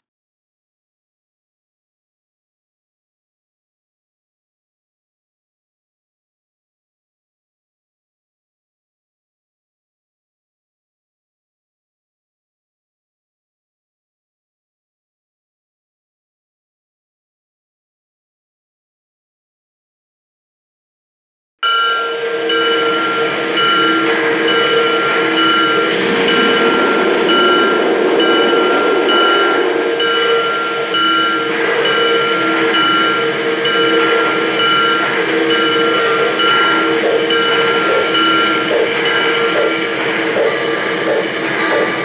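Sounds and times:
model train rolling on track: 21.6s - 42.0s.

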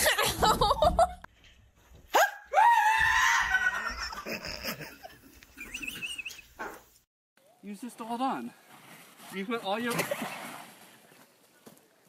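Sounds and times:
high-pitched scream: 2.2s - 3.8s
person laughing: 3.6s - 6.4s.

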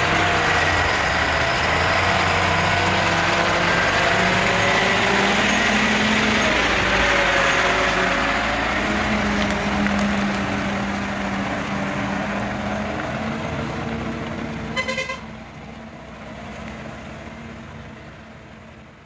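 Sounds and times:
diesel truck engine pulling away: 0.0s - 19.0s
vehicle horn beeps: 14.7s - 15.3s.

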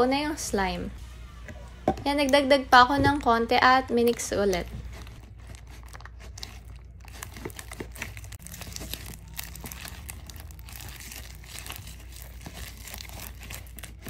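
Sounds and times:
sticky wet crackles: 3.1s - 14.0s
spatula stirring slime in bowl: 3.9s - 14.0s.

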